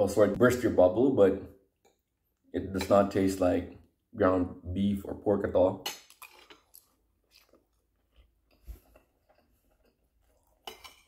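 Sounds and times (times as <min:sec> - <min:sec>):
faint chewing: 0:06.1 - 0:11.0.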